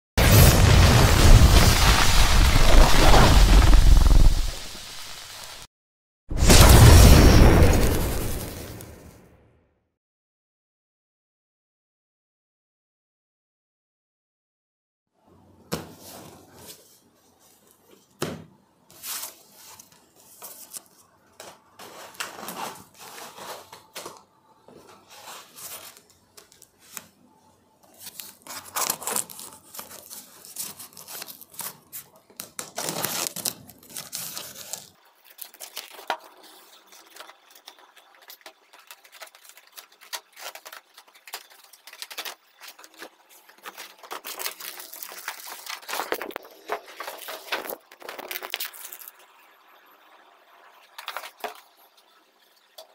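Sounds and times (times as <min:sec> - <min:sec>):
cardboard rustling and scraping: 0:18.9 - 0:26.2, 0:28.0 - 0:49.1
packing tape ripping: 0:27.9 - 0:49.2.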